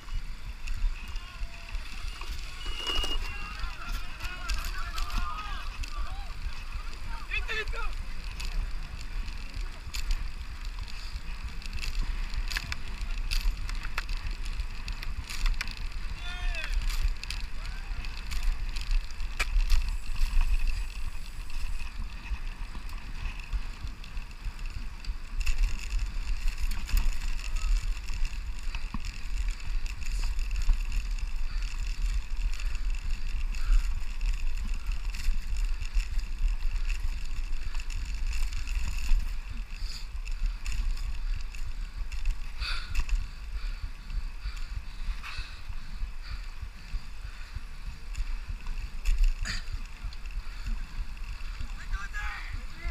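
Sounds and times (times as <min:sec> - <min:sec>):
bicycle tyre noise on paved path: 0:00.0 - 0:52.9
wind rumble on microphone: 0:00.0 - 0:52.9
light clicks and rattles: 0:01.8 - 0:43.7.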